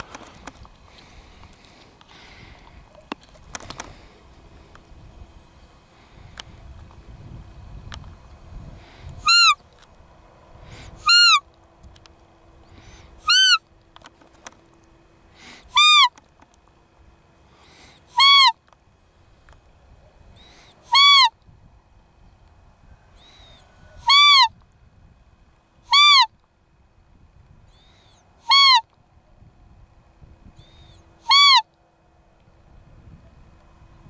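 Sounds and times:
deer call peeps: 9.2s - 9.6s, 10.8s - 11.5s, 12.8s - 13.7s, 15.4s - 16.3s, 17.6s - 18.6s, 20.4s - 21.4s, 23.1s - 24.6s, 25.9s - 26.4s, 27.7s - 29.0s, 30.6s - 31.7s.

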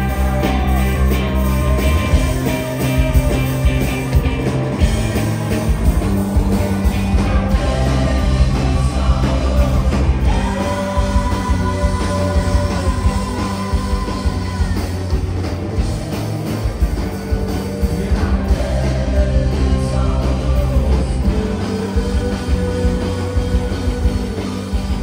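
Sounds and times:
bass guitar: 0.0s - 25.0s
drums: 0.0s - 25.0s
electric guitars: 0.0s - 25.0s
woman singing: 7.6s - 15.2s.

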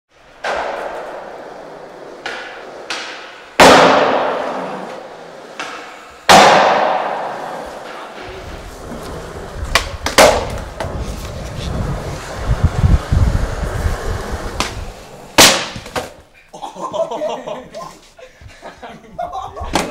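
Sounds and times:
skateboard wheels rumbling on floor: 0.2s - 16.2s
skateboard slams echoing: 0.2s - 16.3s.

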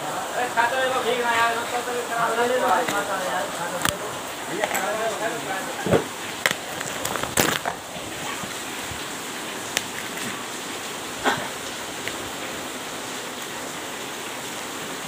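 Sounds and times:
steady background hiss: 0.0s - 15.0s
packing tape and cardboard tearing: 5.8s - 8.6s, 9.7s - 10.5s.

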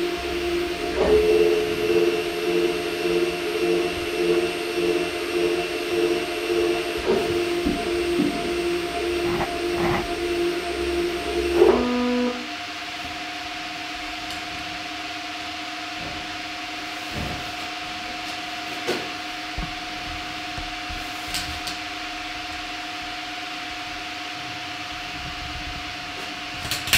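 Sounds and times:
stepper motor two-tone whine: 0.0s - 20.9s.

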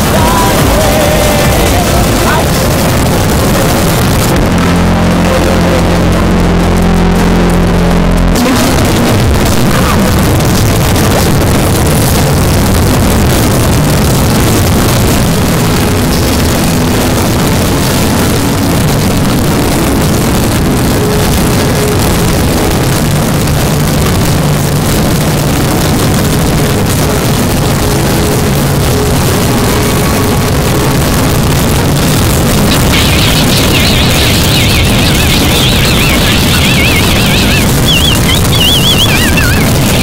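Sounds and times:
dense distorted noise: 0.0s - 40.0s
faint held tones: 32.7s - 40.0s.

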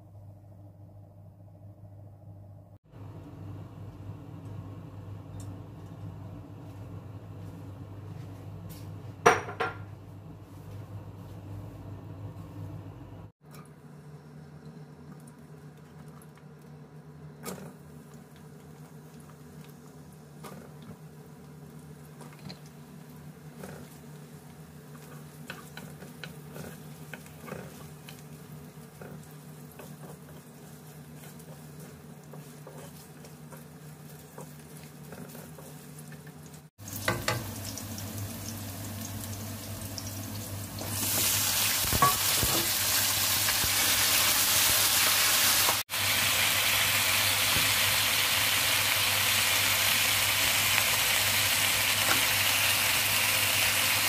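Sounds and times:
food frying in oil: 17.5s - 54.0s
loud sizzle: 17.6s - 54.0s
spatula scraping a wok: 28.6s - 36.3s.

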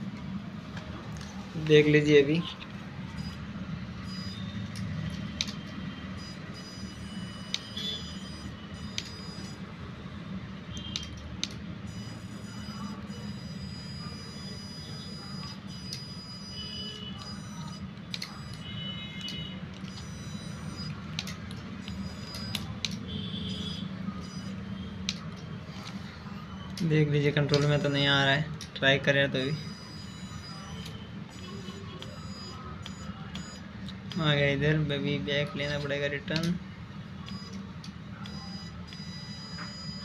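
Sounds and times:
sharp clicks: 10.7s - 11.6s, 18.0s - 26.0s, 27.5s - 27.8s, 35.6s - 36.6s.

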